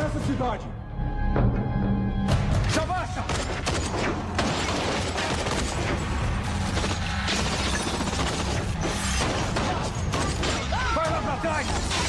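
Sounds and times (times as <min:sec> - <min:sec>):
tense action film music: 0:00.0 - 0:12.0
rapid gunfire: 0:03.2 - 0:10.8.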